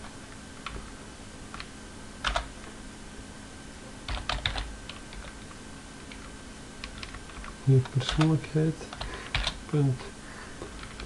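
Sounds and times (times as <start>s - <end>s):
computer keyboard keystrokes: 1.5s - 2.6s, 4.1s - 5.4s, 6.1s - 9.6s, 10.7s - 11.0s.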